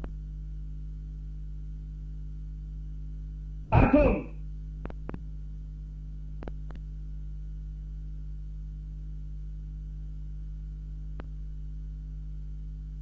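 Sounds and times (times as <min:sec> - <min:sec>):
steady low hum: 0:00.0 - 0:13.0
loud shout: 0:03.8 - 0:04.3.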